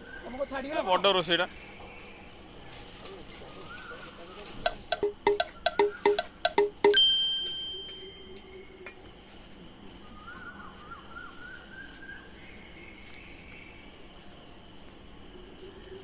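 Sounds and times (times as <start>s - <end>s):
faint wavering bird call: 3.6s - 6.8s, 7.4s - 8.9s, 10.0s - 13.7s.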